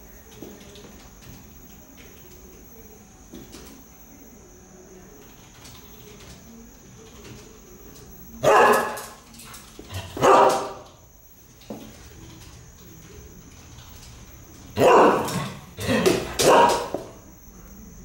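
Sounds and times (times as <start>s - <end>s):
dog barking: 8.4s - 9.2s, 9.9s - 11.0s, 14.8s - 17.2s.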